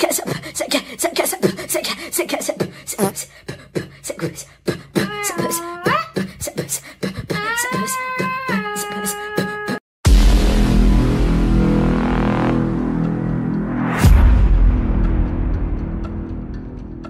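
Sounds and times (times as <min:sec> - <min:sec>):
beatboxing vocal percussion: 0:00.0 - 0:09.8
sung or hummed tune: 0:03.0 - 0:03.2.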